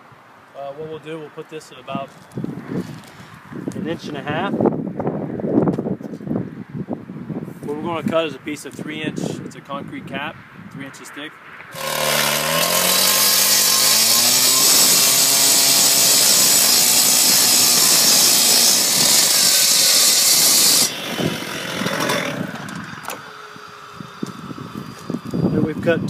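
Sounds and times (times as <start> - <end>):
saw engine revving: 11.7 - 25.6
saw blade grinding concrete: 11.7 - 26.0.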